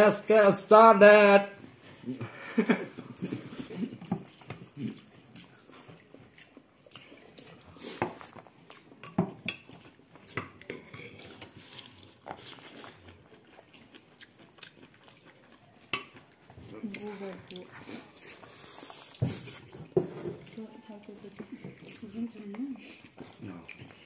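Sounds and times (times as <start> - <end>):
chewing and mouth smacks: 2.9 - 24.0.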